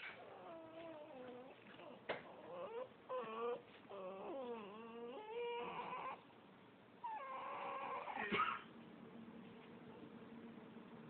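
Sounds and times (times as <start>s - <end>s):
dog whining: 0.0s - 6.3s, 7.0s - 8.6s.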